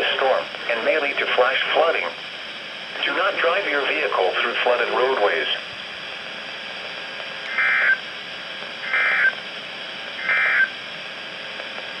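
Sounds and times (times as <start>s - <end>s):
radio hiss: 0.0s - 12.0s
buzzy digital data bursts: 7.5s - 8.0s, 8.8s - 9.4s, 10.2s - 10.8s.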